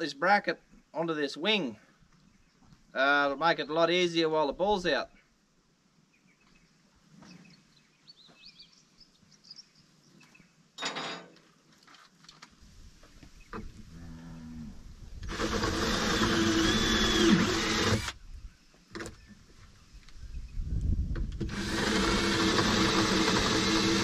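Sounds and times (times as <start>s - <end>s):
cordless drill running: 15.2s - 18.2s, 21.4s - 24.0s.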